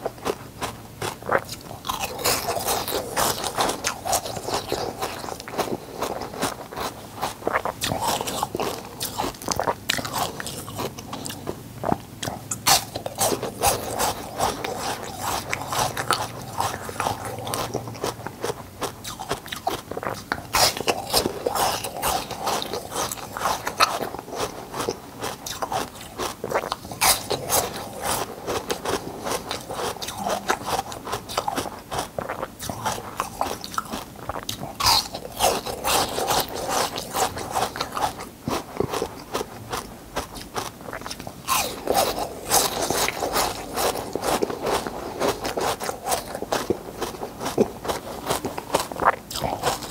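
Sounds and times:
ice crunching between teeth: 0:00.0 - 0:49.9.

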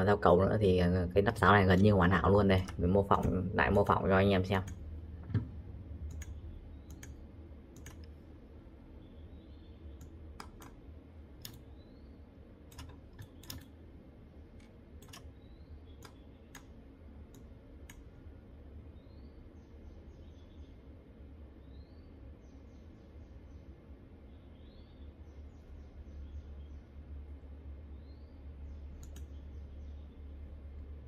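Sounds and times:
faint low hum: 0:00.0 - 0:31.0
computer mouse clicks: 0:04.6 - 0:08.3, 0:09.9 - 0:10.8, 0:11.4 - 0:11.8, 0:12.7 - 0:13.8, 0:14.6 - 0:18.1, 0:28.9 - 0:29.4.

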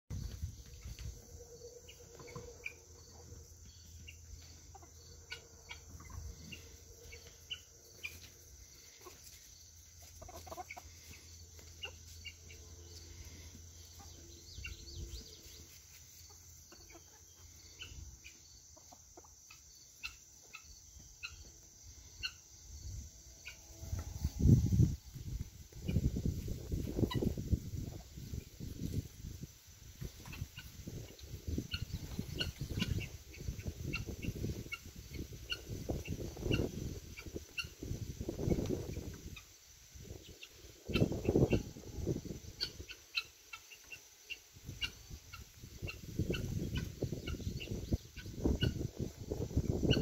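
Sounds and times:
high insect drone: 0:19.7 - 0:31.7.

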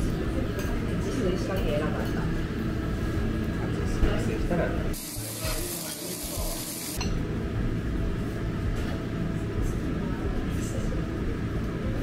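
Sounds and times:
meat sizzling on a grill plate: 0:05.0 - 0:07.0.

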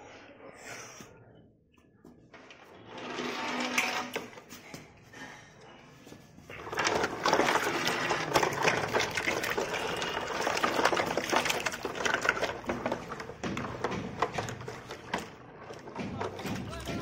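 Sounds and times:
plastic toys knocking: 0:06.5 - 0:17.0
water splashing in a plastic tub: 0:06.5 - 0:17.0.

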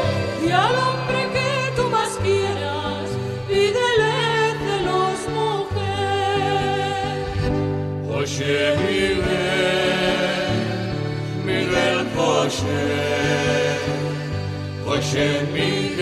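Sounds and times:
group of voices singing: 0:00.0 - 0:02.6, 0:03.9 - 0:16.0
instrumental accompaniment: 0:00.0 - 0:16.0.

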